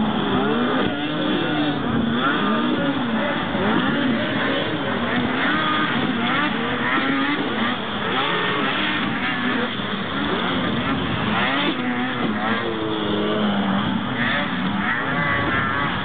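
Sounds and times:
snowmobile engines revving: 0.0 - 16.0.

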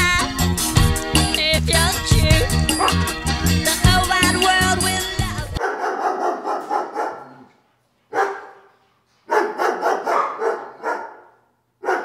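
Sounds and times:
dogs barking: 2.6 - 3.2, 5.6 - 12.0.

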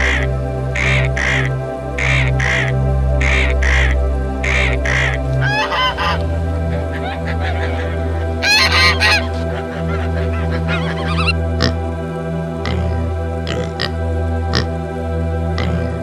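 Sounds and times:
geese honking: 0.0 - 11.9
low hum: 0.0 - 16.0.

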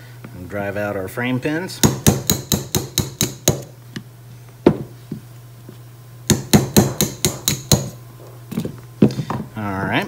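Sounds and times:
hammer tapping a metal punch: 1.8 - 3.7, 6.3 - 8.0.

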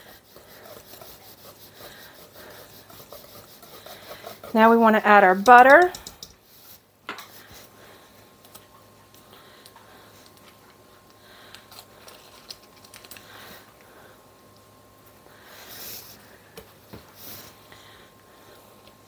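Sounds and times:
paper wrapper crinkling: 11.7 - 13.3.

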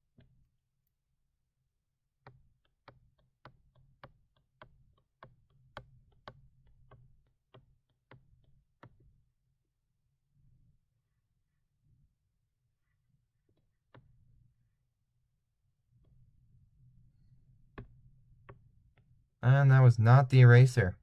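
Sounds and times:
faint clicking taps: 2.2 - 9.1.

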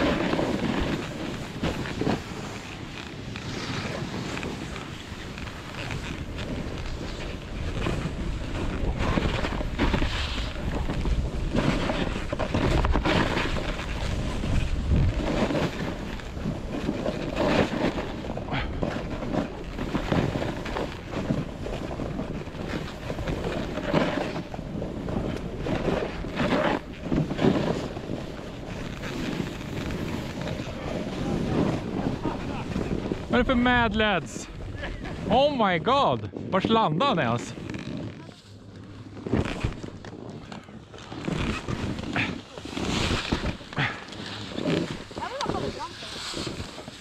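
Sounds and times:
wind rushing over microphone: 0.0 - 36.8
skis scraping over packed snow: 0.0 - 47.0.

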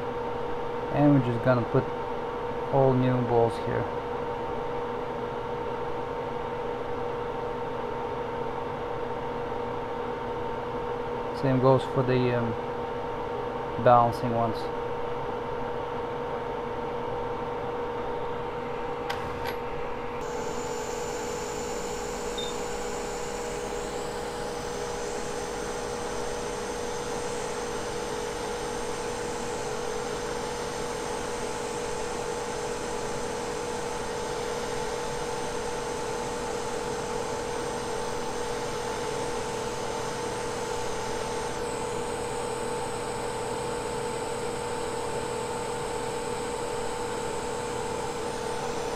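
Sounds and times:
hot-air station blowing: 18.5 - 48.9.

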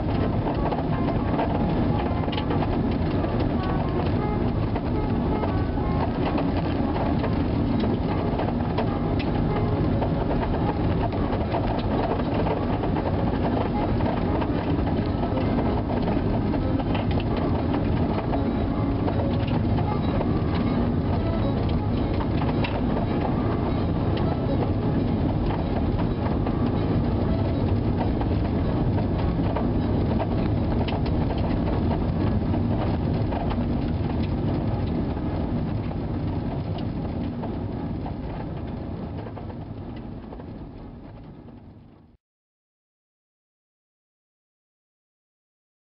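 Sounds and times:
tyre and road noise: 0.0 - 41.9
vehicle engine: 0.0 - 42.2.

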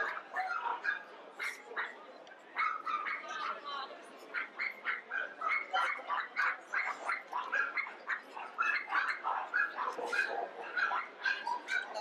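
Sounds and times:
dogs yapping: 4.4 - 12.0.

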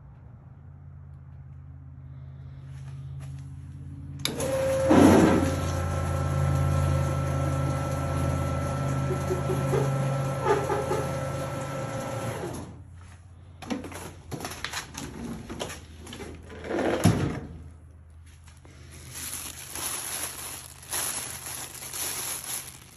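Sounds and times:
trash compactor motor humming: 4.2 - 12.8
plastic bag rustling: 18.2 - 22.9.

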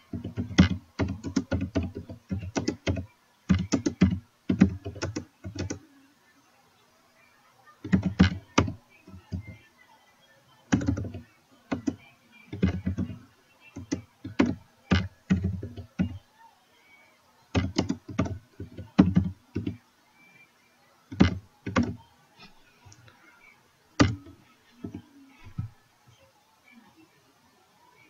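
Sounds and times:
keyboard keystrokes clacking: 0.1 - 5.8, 7.9 - 9.5, 10.7 - 12.0, 12.6 - 13.2, 13.8 - 16.2, 17.6 - 19.8, 21.1 - 22.0, 24.0 - 25.0.

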